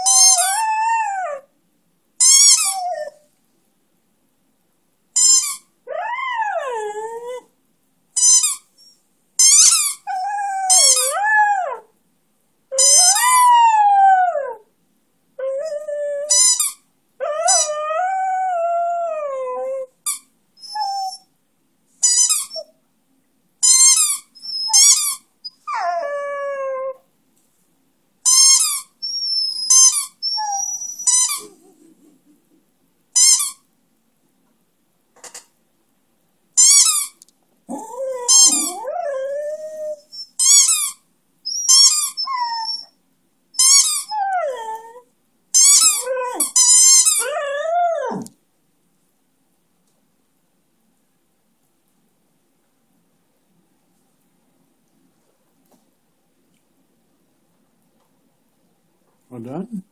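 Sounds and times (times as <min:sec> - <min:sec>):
squeaky toy squeaks: 0:00.0 - 0:00.8, 0:02.2 - 0:03.1, 0:05.2 - 0:05.7, 0:08.2 - 0:11.2, 0:12.8 - 0:13.5, 0:16.2 - 0:16.8, 0:17.4 - 0:17.8, 0:22.0 - 0:22.7, 0:23.6 - 0:25.7, 0:28.2 - 0:31.5, 0:33.2 - 0:33.6, 0:36.6 - 0:38.9, 0:40.1 - 0:42.9, 0:43.6 - 0:44.8, 0:45.6 - 0:47.3
dog howling: 0:00.0 - 0:01.5, 0:05.9 - 0:07.5, 0:10.1 - 0:11.9, 0:37.7 - 0:40.2, 0:44.0 - 0:45.0, 0:45.8 - 0:48.3.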